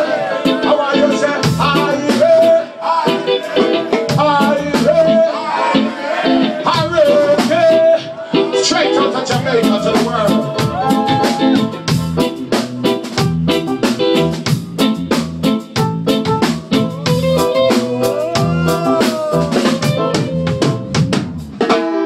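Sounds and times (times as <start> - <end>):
man singing into a microphone: 0.0 - 5.9, 6.6 - 11.7
reggae band drums and bass: 0.0 - 22.0.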